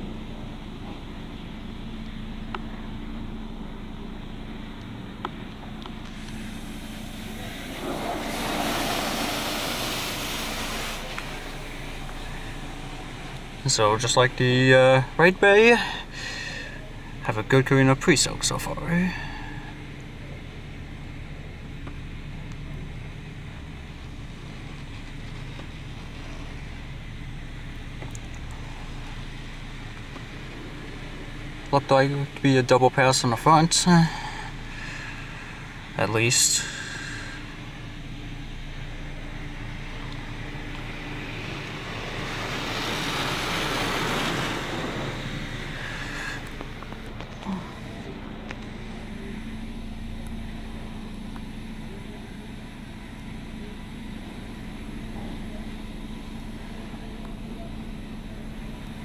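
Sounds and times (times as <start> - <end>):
low rumble: 0.0 - 15.5
steady low hum: 0.0 - 59.0
spray hitting truck windows: 6.1 - 11.8.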